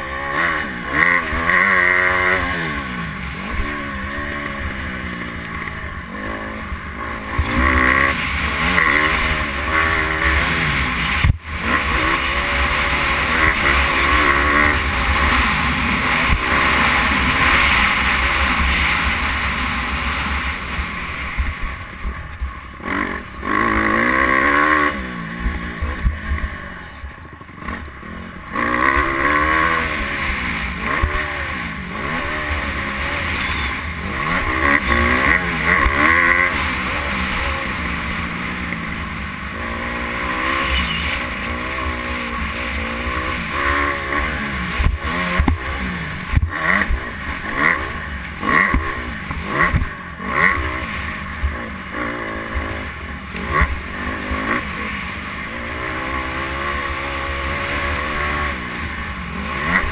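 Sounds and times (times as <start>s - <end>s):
dirt bike engine revving: 0.0s - 59.9s
sharp throttle blips: 28.6s - 38.9s, 39.7s - 51.0s.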